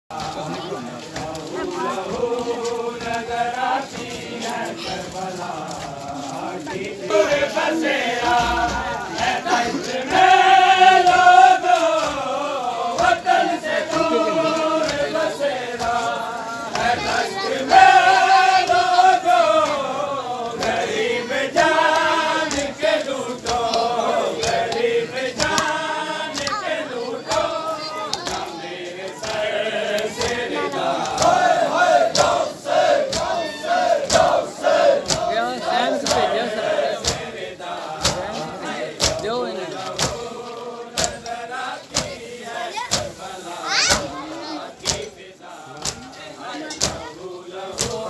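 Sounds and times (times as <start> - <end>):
men chanting in unison: 0.1 - 48.0
sharp slaps: 35.0 - 35.3, 39.0 - 39.2, 39.8 - 40.3, 40.9 - 41.3, 41.9 - 42.2, 42.9 - 43.2, 43.8 - 44.2, 44.8 - 45.2, 45.8 - 46.1, 47.8 - 48.0.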